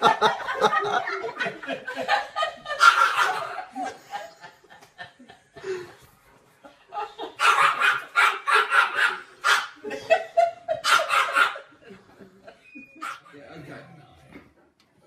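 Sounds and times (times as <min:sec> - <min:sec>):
people laughing: 0:00.0 - 0:14.1
dog barking: 0:02.8 - 0:03.6, 0:07.4 - 0:09.8, 0:10.8 - 0:11.7.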